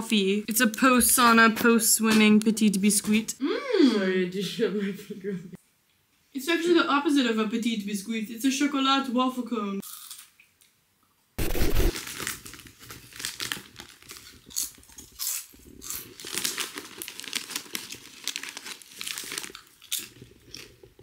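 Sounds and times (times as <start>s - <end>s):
crisp packet crinkling: 11.9s - 21.0s.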